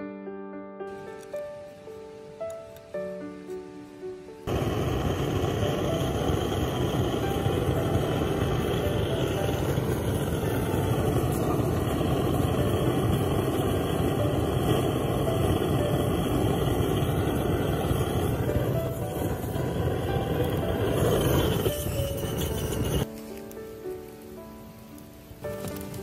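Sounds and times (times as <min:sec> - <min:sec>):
gas torch flame rushing: 0:04.4 - 0:23.1.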